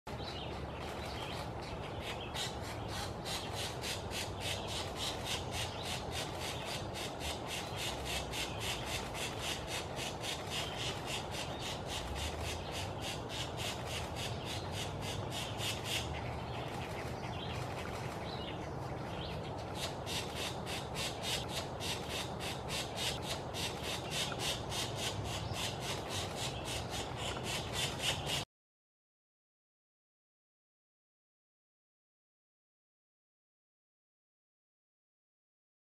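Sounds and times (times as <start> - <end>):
woodpecker nestlings begging calls: 0.3 - 18.6, 19.5 - 28.4.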